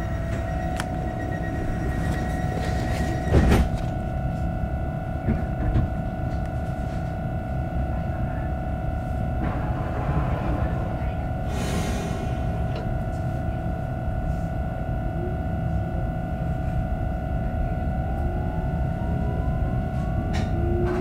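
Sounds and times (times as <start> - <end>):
train electrical hum: 0.0 - 21.0
faint rising whine: 8.5 - 15.1
low rumble: 8.7 - 14.8.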